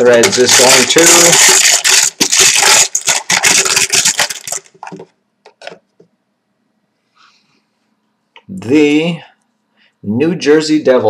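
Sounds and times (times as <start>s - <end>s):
plastic chips clattering: 0.0s - 5.8s.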